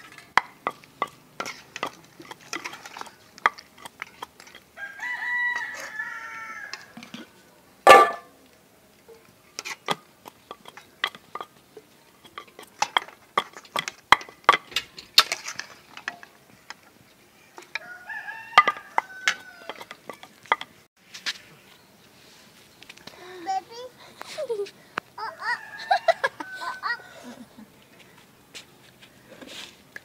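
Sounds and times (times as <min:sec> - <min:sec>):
rooster crowing: 0:04.8 - 0:07.0, 0:17.7 - 0:19.9, 0:25.2 - 0:27.4
metal ladle clinking on pot: 0:07.9 - 0:08.3.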